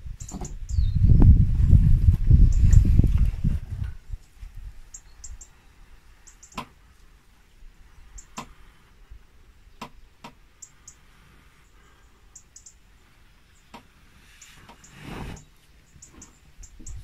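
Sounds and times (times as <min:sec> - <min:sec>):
faint high bird chirps: 0:00.2 - 0:01.4, 0:04.8 - 0:06.6, 0:10.6 - 0:12.9, 0:13.5 - 0:17.0.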